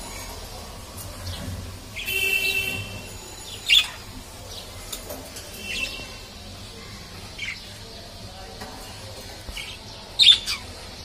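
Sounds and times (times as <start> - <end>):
budgerigars chirping: 9.6 - 10.7.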